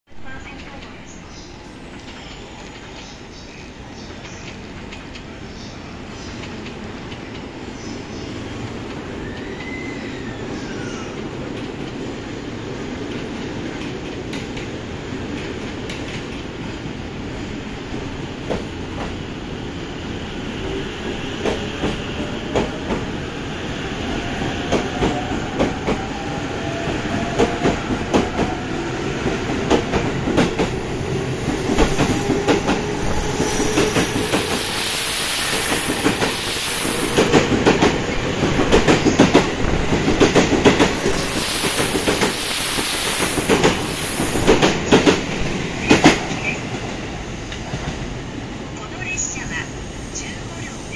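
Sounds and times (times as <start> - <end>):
high squeal: 9.2 - 11.2
train wheels clicking over rail joints: 29.3 - 46.8.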